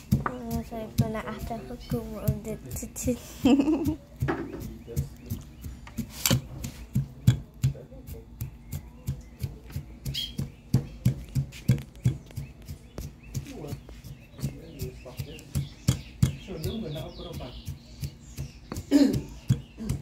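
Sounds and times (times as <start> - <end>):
pestle pounding in stone mortar: 0.0 - 20.0.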